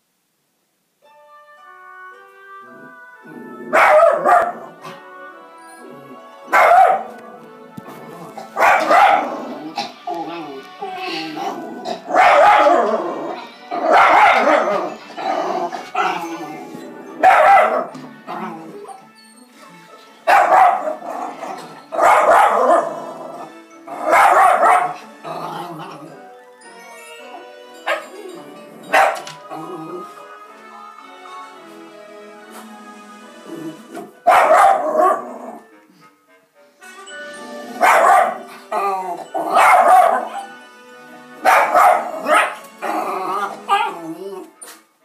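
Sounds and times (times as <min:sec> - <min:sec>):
soft piano music: 0:01.0 - 0:36.0, 0:36.6 - 0:44.6
dog barking loudly: 0:03.7 - 0:04.8, 0:06.5 - 0:07.1, 0:08.6 - 0:09.5, 0:12.0 - 0:13.0, 0:13.8 - 0:14.8, 0:17.2 - 0:17.9, 0:20.3 - 0:23.1, 0:24.0 - 0:25.0, 0:28.9 - 0:29.3, 0:34.2 - 0:35.5, 0:37.8 - 0:38.5, 0:39.4 - 0:40.5, 0:41.4 - 0:44.0.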